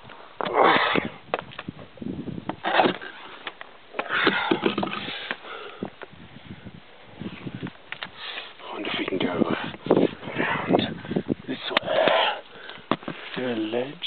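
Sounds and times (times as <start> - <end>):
camera knocking and scraping on rock: 2.4 - 5.4, 12.9 - 13.4
person breathing hard: 4.1 - 6.6, 12.0 - 13.3.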